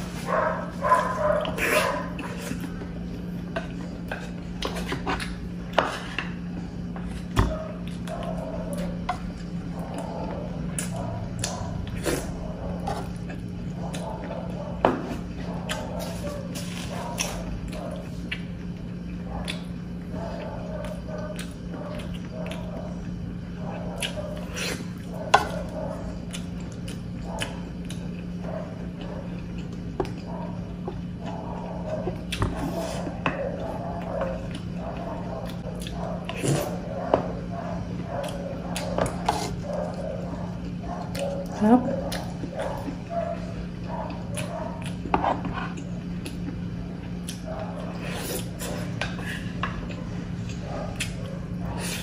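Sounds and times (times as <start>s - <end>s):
chewing food: 0.0s - 52.0s
steady low hum: 0.0s - 52.0s.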